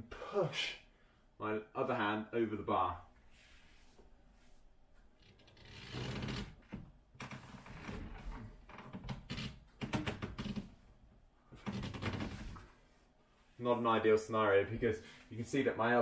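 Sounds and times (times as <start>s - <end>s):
pull-up bar creaking and clicking: 5.2s - 10.8s, 11.5s - 12.7s.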